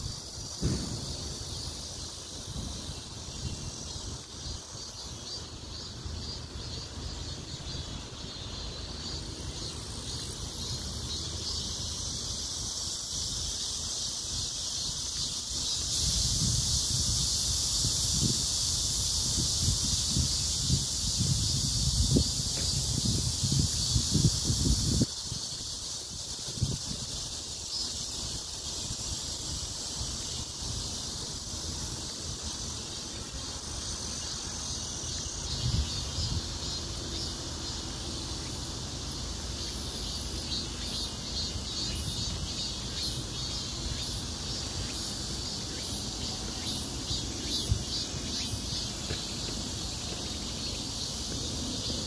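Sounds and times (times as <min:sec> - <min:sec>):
insects chorus pulsing: 0:00.0 - 0:52.0
wind buffeting microphone: 0:16.0 - 0:27.4.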